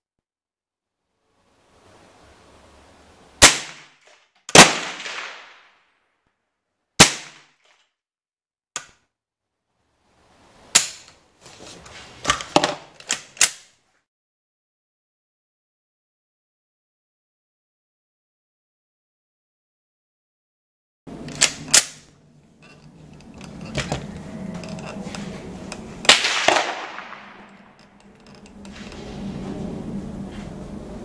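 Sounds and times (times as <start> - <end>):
rifle shots: 3.4 - 5.7, 7.0 - 7.5, 26.0 - 27.8
quieter sharp clicks and cracks: 3.4 - 5.8, 7.0 - 7.8, 25.7 - 28.7.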